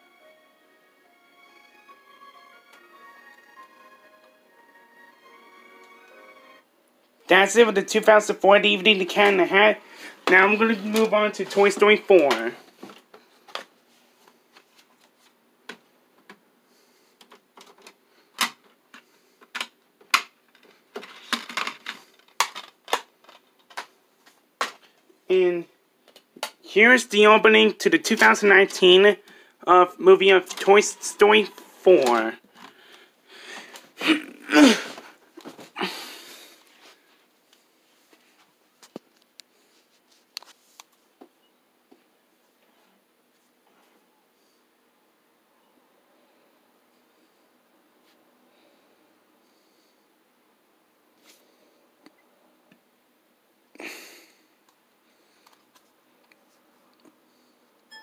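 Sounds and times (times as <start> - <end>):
short vocal sounds from person: 34.0 - 35.0.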